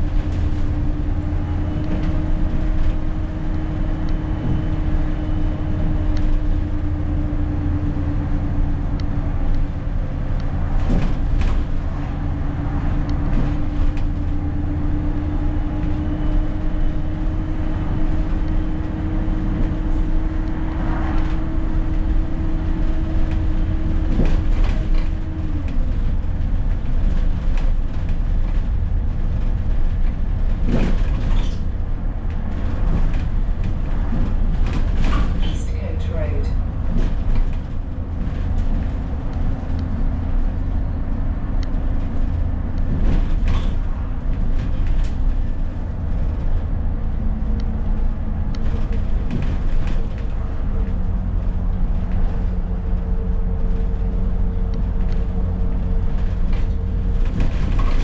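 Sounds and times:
bus engine and road drone: 0.0 - 58.0
knocks and rattles: 21.0 - 40.6.

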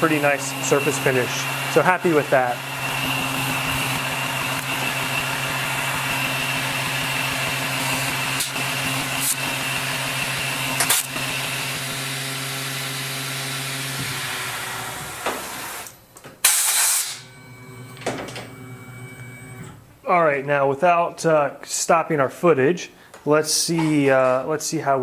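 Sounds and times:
milling machine boring steel: 0.0 - 15.9
short loud hiss: 16.4 - 17.2.

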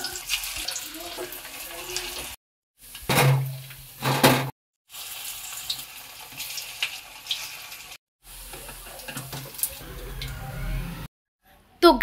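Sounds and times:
food deep-frying in oil: 0.0 - 9.8
oil popping and crackling: 4.9 - 9.8.

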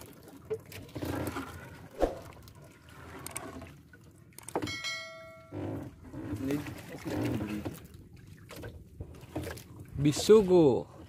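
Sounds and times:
seawater dripping: 2.2 - 11.0
wet net being hauled: 4.7 - 7.9.

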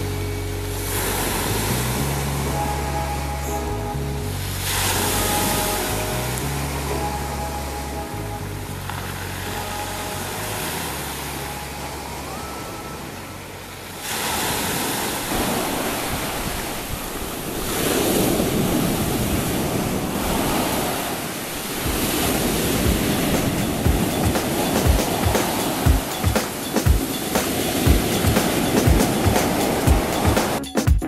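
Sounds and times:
sea surf breaking: 0.7 - 3.7, 4.4 - 7.9, 8.8 - 30.6
wind thumps on microphone: 21.8 - 26.1.

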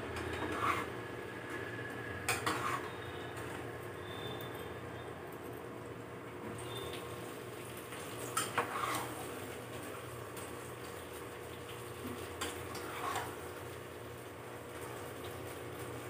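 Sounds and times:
spatula scraping a pan: 0.3 - 1.0, 2.3 - 3.1, 8.4 - 9.3, 12.4 - 13.4
chicken sizzling in a pan: 6.8 - 16.0.

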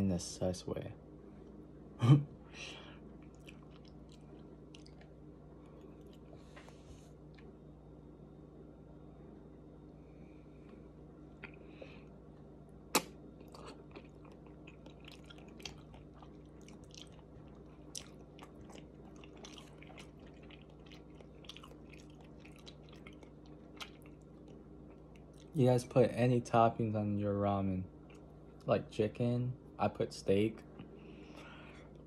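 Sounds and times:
person chewing noodles: 3.0 - 7.6, 13.0 - 25.6.

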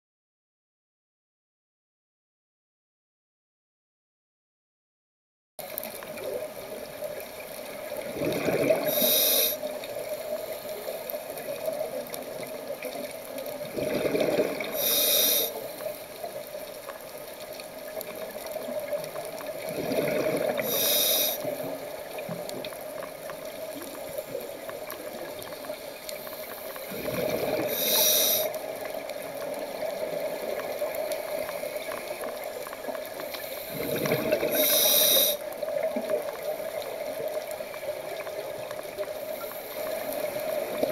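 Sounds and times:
exhaled bubbles: 7.6 - 9.8, 11.4 - 15.6, 18.1 - 22.8, 23.4 - 37.4
regulator breathing underwater: 8.2 - 11.3, 13.8 - 16.1, 19.8 - 21.7, 26.1 - 28.7, 33.2 - 35.5.

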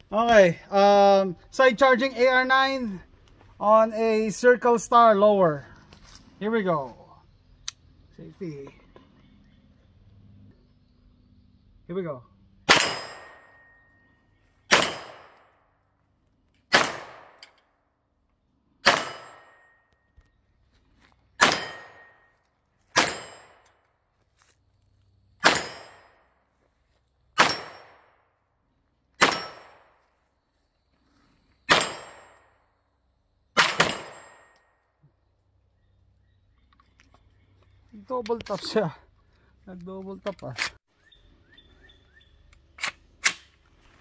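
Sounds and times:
pistol gunshots: 12.6 - 13.6, 14.7 - 15.6, 16.7 - 17.4, 18.8 - 19.7, 21.4 - 22.1, 22.9 - 23.6, 25.4 - 26.2, 27.4 - 28.2, 29.2 - 30.0, 31.7 - 32.4, 33.6 - 34.5.

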